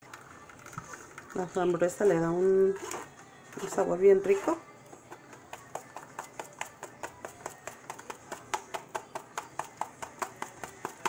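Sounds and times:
metal spoon scraping a mesh strainer: 1.9s - 4.7s.

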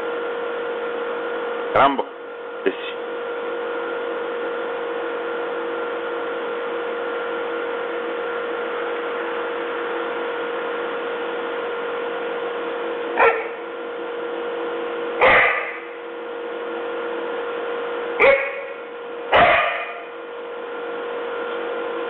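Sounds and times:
steady hum with hiss: 0.0s - 22.0s
young dog barking: 13.2s - 13.6s, 15.2s - 15.8s, 18.2s - 20.0s.

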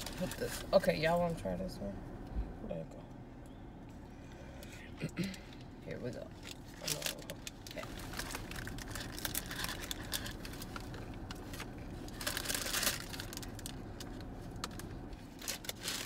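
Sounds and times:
crunchy taco being chewed: 6.4s - 16.0s
paper wrapper crinkling: 6.4s - 16.0s.

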